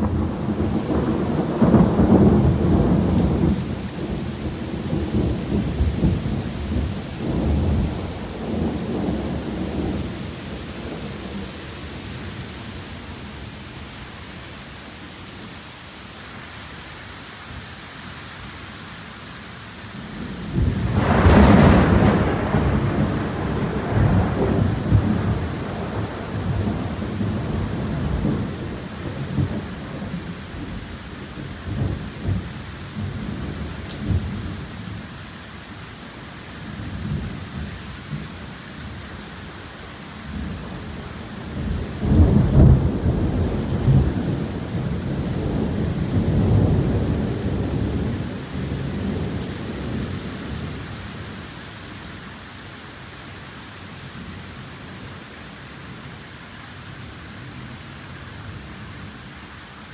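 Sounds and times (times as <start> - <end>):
rolling thunder: 0.0 - 11.4, 20.2 - 34.6, 40.3 - 50.8
heavy rain hissing: 0.0 - 59.9.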